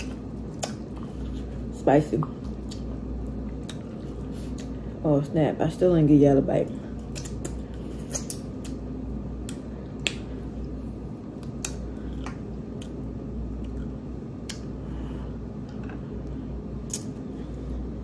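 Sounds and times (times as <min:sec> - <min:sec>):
corn cob clicks and wet squishes: 0:00.0 - 0:01.4, 0:02.2 - 0:04.8, 0:07.0 - 0:14.8, 0:16.8 - 0:17.2
steady low hum: 0:00.0 - 0:18.0.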